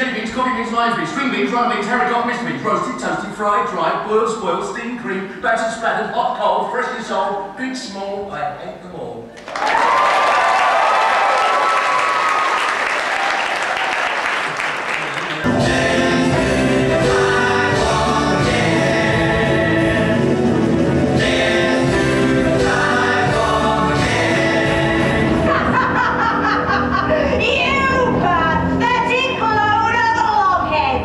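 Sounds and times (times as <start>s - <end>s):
audience applause: 9.4s - 15.5s
loud band music with bass: 15.4s - 31.0s
cast singing in chorus: 15.5s - 25.6s.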